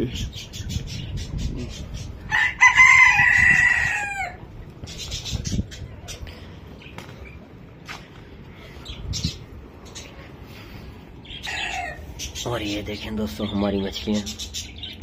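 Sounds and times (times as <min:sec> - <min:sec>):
rooster crowing: 0:02.3 - 0:04.4, 0:11.4 - 0:12.1.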